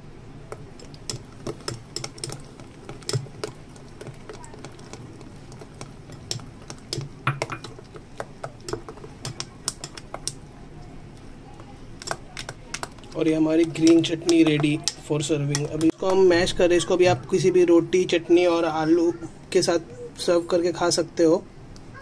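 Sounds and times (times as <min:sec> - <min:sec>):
spoon clinking against glass bowl: 0:06.9 - 0:07.8.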